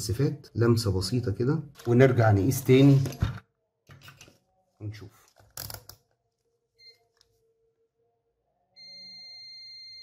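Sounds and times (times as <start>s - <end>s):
multimeter continuity beep: 6.8s - 7.1s, 8.8s - 10.0s
multimeter chirp: 8.8s - 10.0s.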